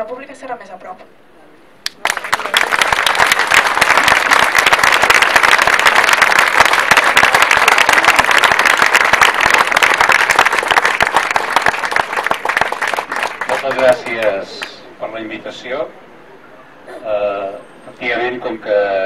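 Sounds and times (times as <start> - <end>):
crowd applauding: 1.9 - 14.8.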